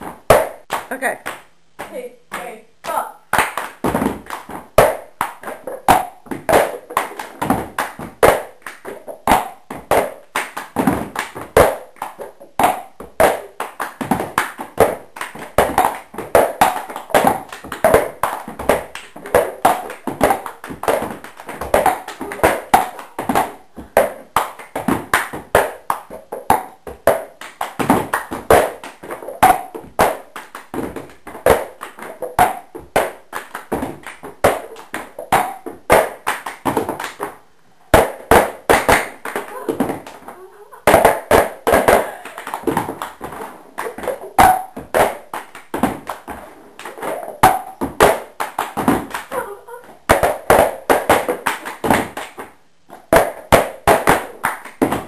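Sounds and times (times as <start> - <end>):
plastic cups knocking on wooden floor: 3.8 - 37.4, 38.0 - 49.3, 49.9 - 55.0.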